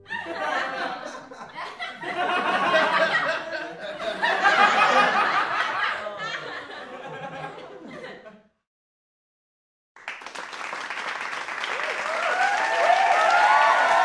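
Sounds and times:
group of people laughing: 0:00.0 - 0:08.5.

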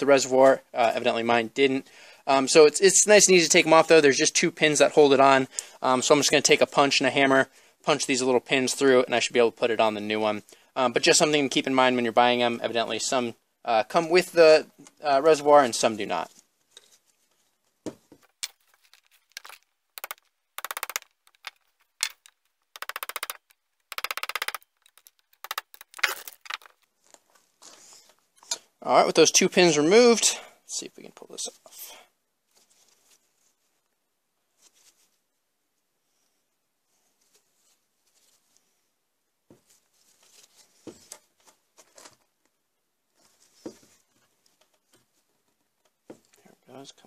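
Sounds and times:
plastic rubbing and scraping: 0:18.2 - 0:26.8
rapid rattling taps: 0:18.2 - 0:26.8
sharp knocks: 0:18.4 - 0:26.7.

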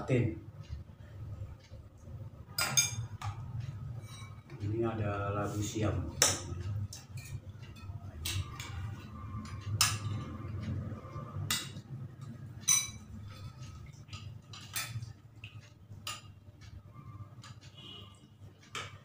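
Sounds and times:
low steady hum: 0:00.0 - 0:19.0
metal spoon clinking on ceramic: 0:02.6 - 0:03.2, 0:12.6 - 0:15.1.

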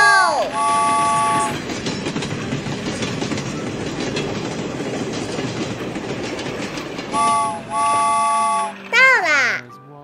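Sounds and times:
train wheels clacking on rails: 0:00.0 - 0:09.1
train horn chord: 0:00.5 - 0:01.6, 0:07.1 - 0:08.9.

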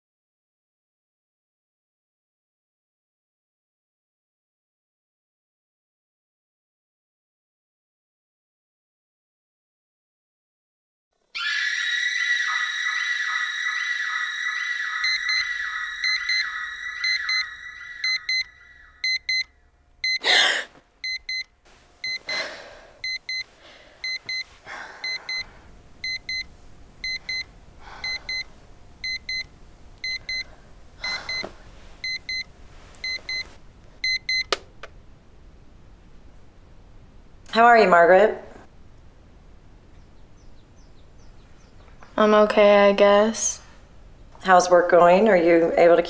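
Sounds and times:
high fluttering tone: 0:11.4 - 0:19.4
alarm clock beeping: 0:12.5 - 0:20.2, 0:21.0 - 0:22.4, 0:23.0 - 0:34.5
person gasping: 0:20.2 - 0:20.8, 0:22.2 - 0:23.0, 0:23.6 - 0:24.0, 0:24.6 - 0:25.6, 0:27.8 - 0:28.4, 0:30.5 - 0:31.6
heavy breathing: 0:22.2 - 0:25.7, 0:27.8 - 0:28.5, 0:30.4 - 0:32.0.

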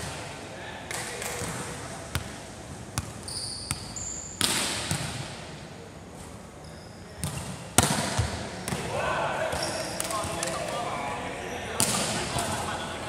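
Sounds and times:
volleyball hits and bounces: 0:03.0 - 0:05.4, 0:07.2 - 0:08.9, 0:11.8 - 0:12.6
shoe squeaks on court: 0:03.2 - 0:04.4, 0:06.6 - 0:07.4.

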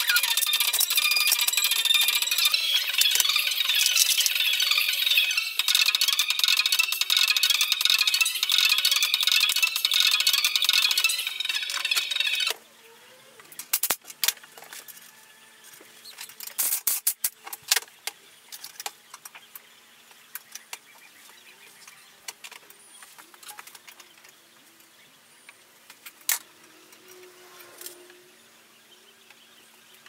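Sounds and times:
metal parts clicking and clinking: 0:13.6 - 0:15.0, 0:16.1 - 0:17.8.

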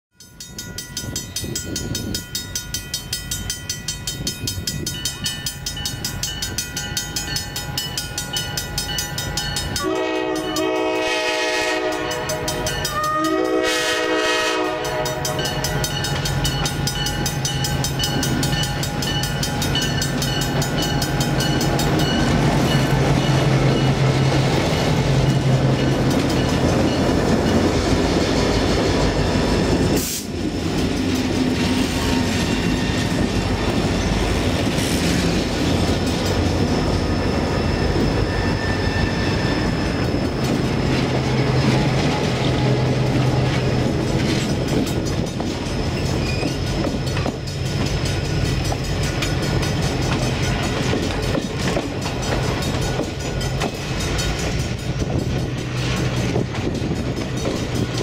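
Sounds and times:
crossing bell ringing: 0:00.1 - 0:30.0, 0:30.8 - 0:34.6, 0:35.5 - 0:58.0
train wheels rumbling on rails: 0:00.2 - 0:58.0
locomotive air horn: 0:09.8 - 0:15.8
locomotive engine drone: 0:14.6 - 0:58.0.

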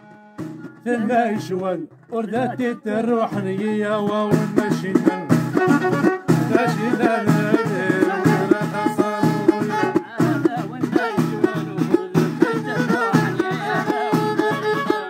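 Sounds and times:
frame drums beating: 0:00.2 - 0:15.0
bowed violin melody: 0:05.0 - 0:15.0.

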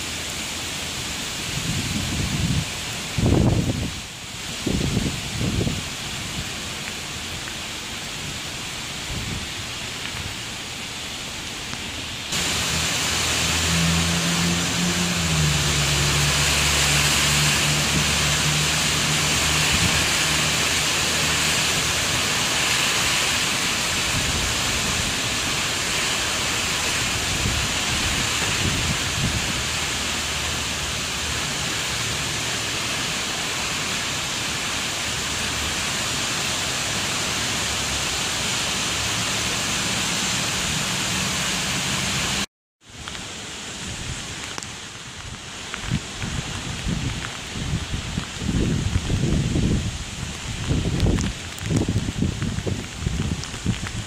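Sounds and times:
heavy rain pouring: 0:00.0 - 0:54.0
train engine hum: 0:12.4 - 0:22.4.

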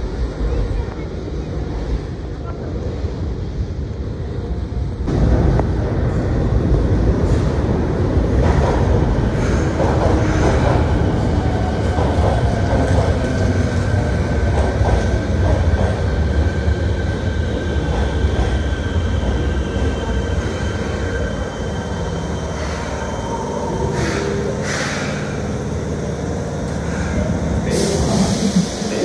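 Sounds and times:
high train whine: 0:00.0 - 0:29.0
train wheels rumbling: 0:04.9 - 0:29.0.

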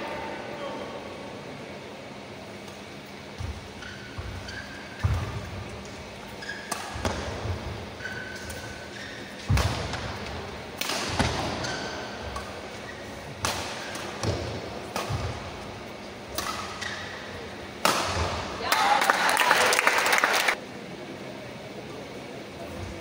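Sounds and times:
rackets hitting shuttlecock: 0:02.6 - 0:18.6
shoe squeaks on court floor: 0:03.7 - 0:05.4, 0:06.3 - 0:07.0, 0:08.0 - 0:09.5.

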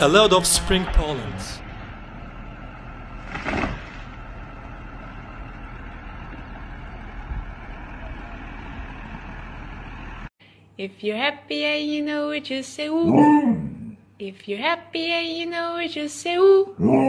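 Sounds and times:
heavy vehicle engine idling: 0:00.0 - 0:10.3.

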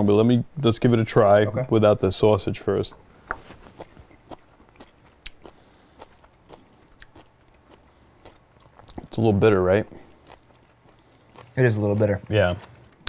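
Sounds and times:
person chewing: 0:03.3 - 0:09.2, 0:09.9 - 0:13.0.

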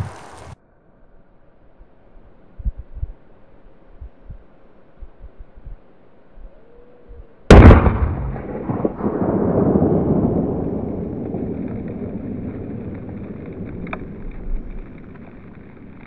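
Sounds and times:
firecracker bang: 0:07.5 - 0:16.0.

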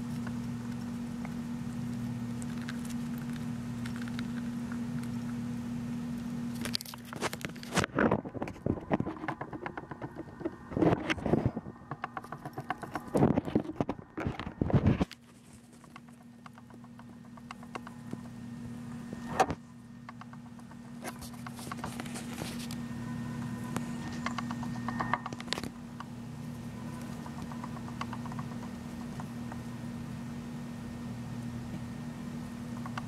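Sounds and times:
hamster nibbling food: 0:00.0 - 0:07.8, 0:11.9 - 0:14.4, 0:15.0 - 0:19.0, 0:20.0 - 0:22.8, 0:23.4 - 0:29.8, 0:31.4 - 0:33.0
low steady hum: 0:00.0 - 0:33.0.

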